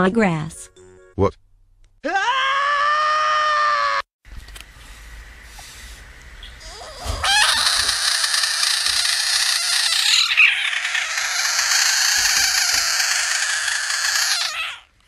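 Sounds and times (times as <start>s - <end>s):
frog hissing scream: 6.6s - 14.9s.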